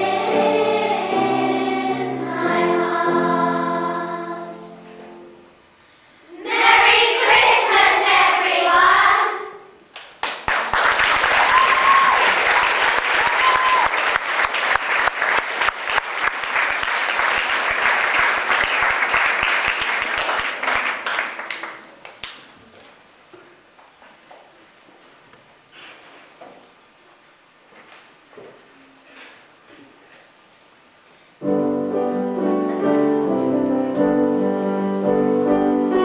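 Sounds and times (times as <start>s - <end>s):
children's choir singing: 0.0s - 5.4s, 6.3s - 9.7s
audience applause: 10.2s - 21.9s.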